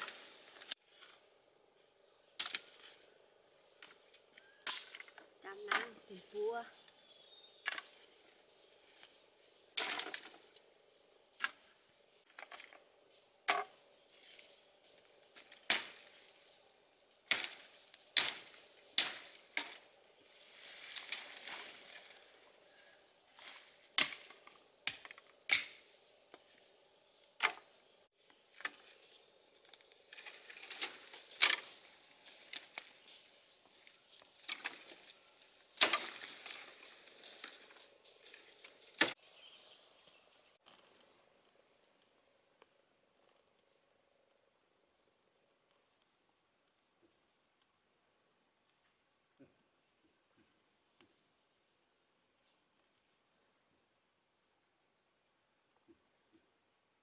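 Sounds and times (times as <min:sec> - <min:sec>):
leaves and branches rustling: 0:00.0 - 0:54.1
machete chopping brush: 0:15.4 - 0:16.2, 0:17.2 - 0:19.8, 0:23.4 - 0:25.9, 0:35.7 - 0:36.7.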